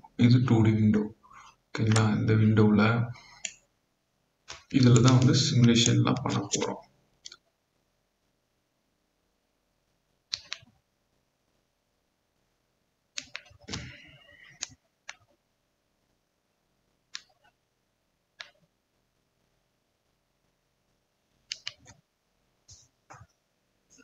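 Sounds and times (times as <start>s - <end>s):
computer mouse clicks: 3.3s - 3.6s, 4.5s - 7.4s, 10.3s - 10.7s, 13.2s - 15.4s, 17.1s - 17.6s, 18.4s - 18.7s, 21.5s - 22.0s.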